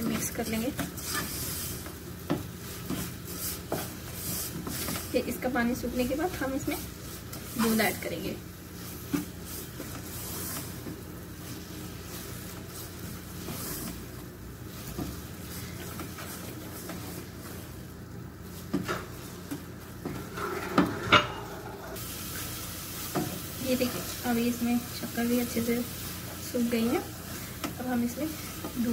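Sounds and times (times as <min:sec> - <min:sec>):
spatula scraping in a steel pot: 0:01.0 - 0:01.7, 0:20.1 - 0:22.0.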